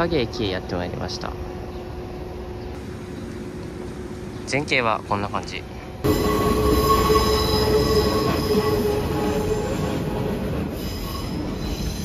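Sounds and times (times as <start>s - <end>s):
rumble of passing train cars: 0.0s - 12.0s
train wheels squealing: 6.1s - 12.0s.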